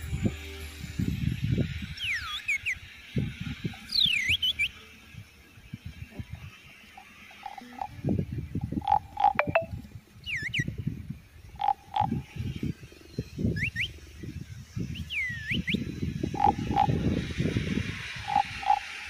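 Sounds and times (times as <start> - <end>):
frogs croaking chorus: 2.0 - 10.6, 11.2 - 19.0
swooping frog calls: 6.2 - 10.7, 11.5 - 14.3, 15.0 - 17.1, 18.0 - 19.0
higher frog notes: 7.0 - 9.9, 16.3 - 17.1, 18.2 - 19.0.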